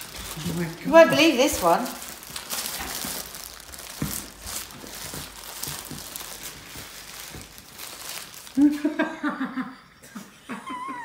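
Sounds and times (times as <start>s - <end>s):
packaging crinkling and rustling: 0.0s - 9.0s
sharp packaging crackle: 0.0s - 9.0s.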